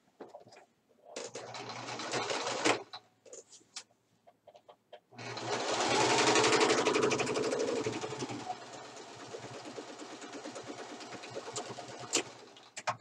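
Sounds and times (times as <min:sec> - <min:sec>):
sewing machine stitching: 0:01.2 - 0:03.0, 0:05.2 - 0:13.0.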